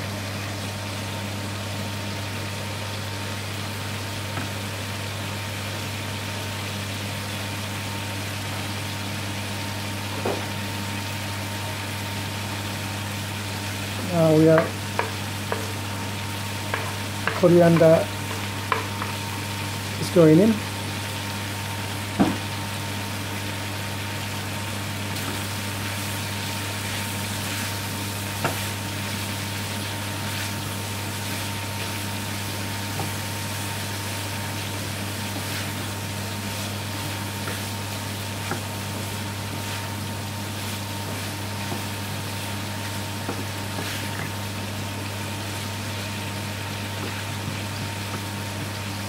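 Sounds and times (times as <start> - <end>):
wooden spoon stirring in pan: 14.0 - 20.2, 25.1 - 49.0
spoon knocking against pan: 14.6 - 15.7, 16.7 - 19.1.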